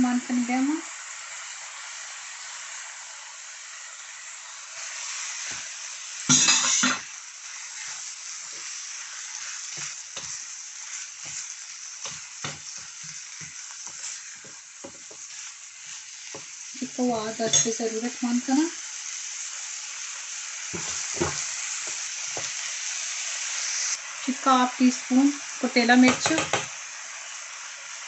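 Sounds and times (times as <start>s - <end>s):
food sizzling in a frying pan: 0.0s - 28.0s
spatula knocking and scraping pan: 6.3s - 7.1s, 7.8s - 17.8s, 20.7s - 22.6s, 26.0s - 26.7s.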